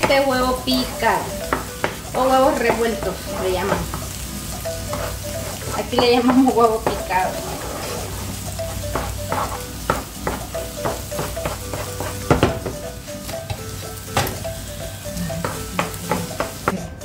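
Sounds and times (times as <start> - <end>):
wooden spatula scraping pan: 0.0 - 4.2, 4.8 - 12.6
light sizzle: 0.0 - 17.0.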